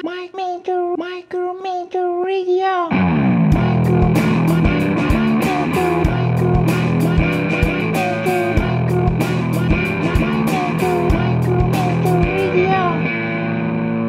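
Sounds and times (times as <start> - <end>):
instrumental rock music: 2.9 - 14.0.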